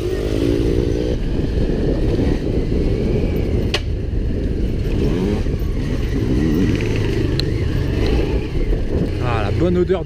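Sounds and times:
motorcycle engine revving: 0.0s - 10.0s.

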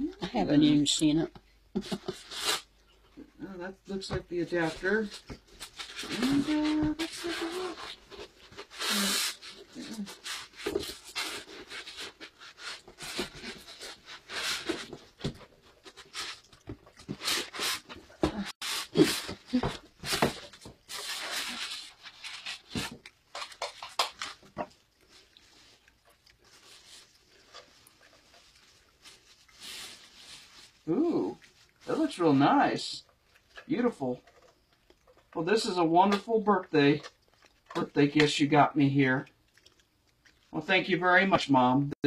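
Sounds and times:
cardboard rustling and tearing: 4.6s - 25.8s.

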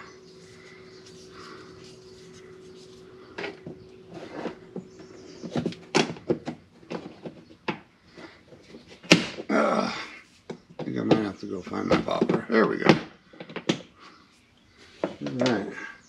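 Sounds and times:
faint steady hum: 0.0s - 16.0s
hard plastic clicks and knocks: 5.4s - 7.9s, 10.5s - 13.9s.

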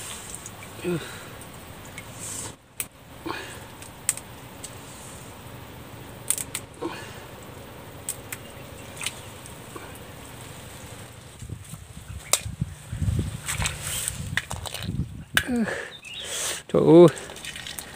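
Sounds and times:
sharp clicks: 3.8s - 4.8s, 6.2s - 6.8s, 8.0s - 9.6s
hands rummaging in wet mud: 17.2s - 17.9s.

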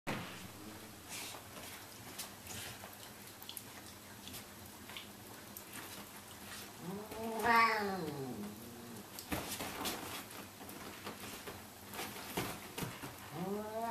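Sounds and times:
cat yowling: 6.8s - 9.0s, 13.3s - 13.9s.

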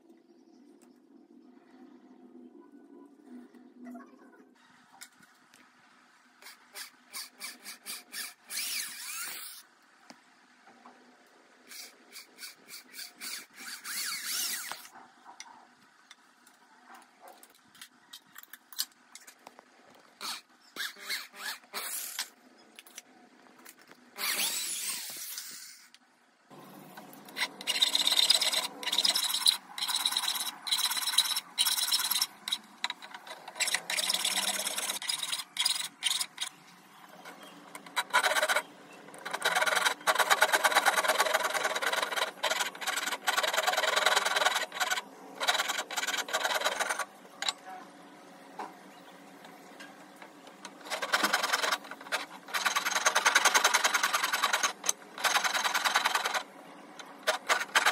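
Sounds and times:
electric drill running: 24.2s - 25.9s.

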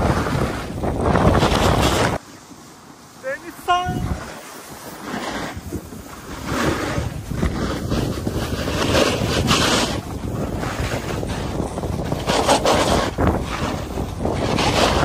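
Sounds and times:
wind buffeting microphone: 0.0s - 2.2s, 3.2s - 15.0s
skis scraping over snow: 0.0s - 15.0s.

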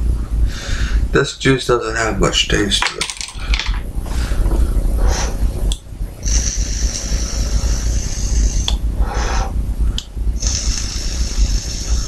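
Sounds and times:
breathy exhales: 0.4s - 1.1s, 6.2s - 9.6s, 10.4s - 12.0s
low rumble: 3.4s - 12.0s
high hiss of vaping: 10.4s - 12.0s.

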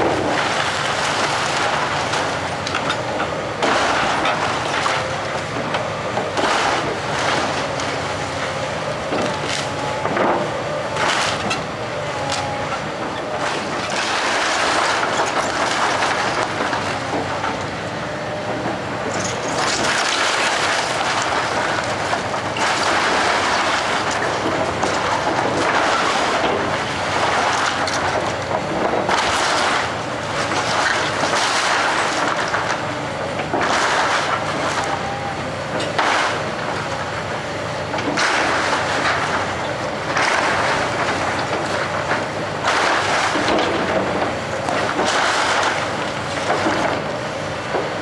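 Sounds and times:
excavator engine running: 0.0s - 48.0s
boards breaking and debris falling: 3.6s - 8.1s, 9.1s - 11.6s, 13.4s - 17.6s, 19.1s - 32.8s, 33.4s - 35.0s, 35.8s - 37.1s, 38.0s - 47.1s.

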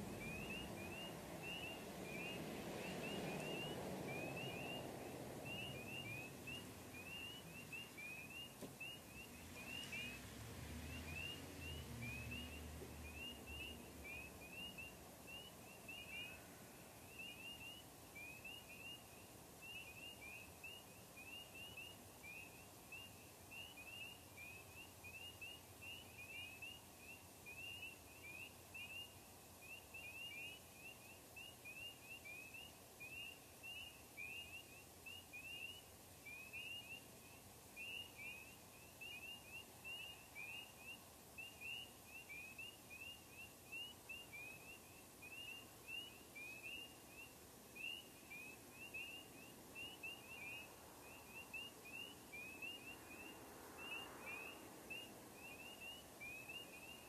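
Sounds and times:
low background rumble: 0.0s - 29.8s
frogs peeping: 0.0s - 57.0s.

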